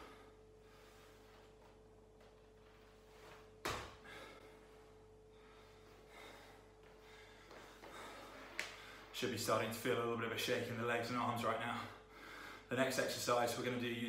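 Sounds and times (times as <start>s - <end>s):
person breathing: 0.0s - 1.7s, 3.9s - 9.2s, 11.9s - 12.7s
feet landing thud on floor: 3.3s - 4.3s.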